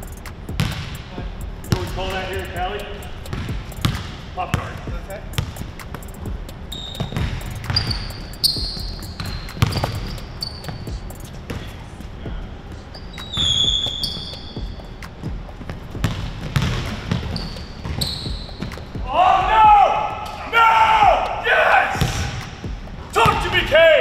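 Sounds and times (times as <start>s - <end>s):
sneakers squeaking on court: 0.1s - 12.1s, 12.8s - 19.1s
basketball bouncing on hardwood: 0.5s - 1.0s, 3.3s - 6.4s, 7.0s - 11.7s, 13.2s - 19.1s.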